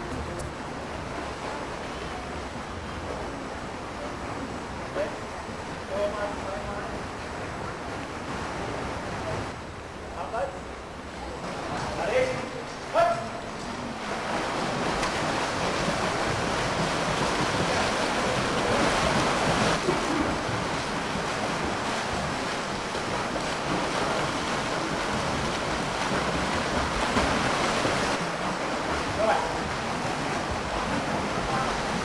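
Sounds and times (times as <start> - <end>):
swimmers splashing in pool: 11.3 - 32.0.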